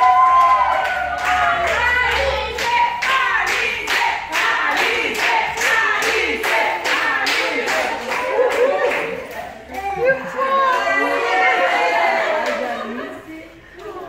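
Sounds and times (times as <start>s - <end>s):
people clapping in time: 0.0s - 9.6s
group of people singing: 1.8s - 9.2s.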